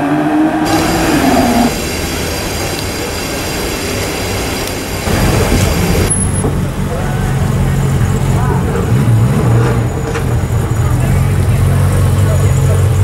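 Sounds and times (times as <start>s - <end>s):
sports car accelerating: 0.0s - 2.0s, 5.1s - 13.0s
car engine running low: 0.4s - 13.0s
thin high whine: 0.6s - 6.5s
street hiss: 0.6s - 7.8s.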